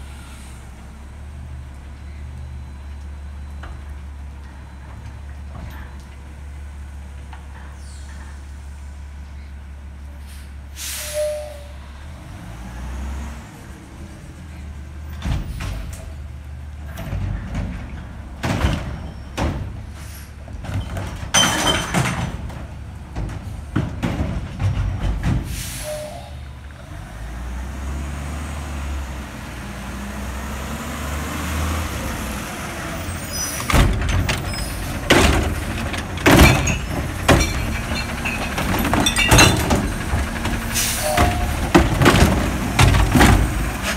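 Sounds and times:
air brakes hissing: 10.2s - 12.0s, 19.9s - 20.4s, 25.4s - 26.6s, 40.7s - 41.6s
knocks and clatters from truck: 15.1s - 16.2s, 16.8s - 25.7s, 33.3s - 43.9s
diesel truck engine humming: 25.4s - 43.9s.

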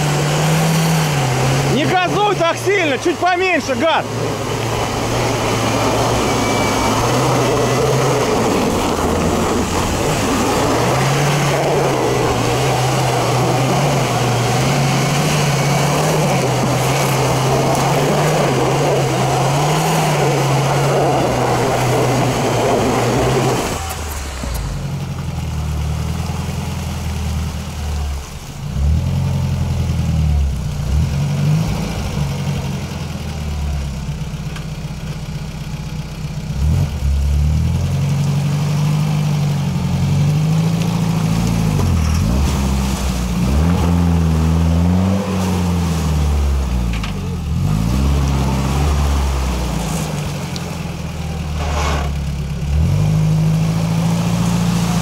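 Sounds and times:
loud rushing noise: 0.0s - 24.8s
uneven engine note: 0.0s - 25.8s
engine running under load: 0.0s - 55.0s.

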